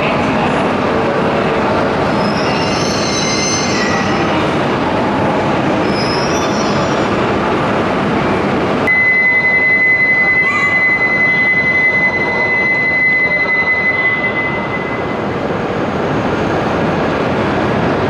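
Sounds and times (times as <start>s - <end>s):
faint high squeals: 2.1s - 4.3s, 9.0s - 15.2s
high-pitched beep: 8.9s - 15.3s.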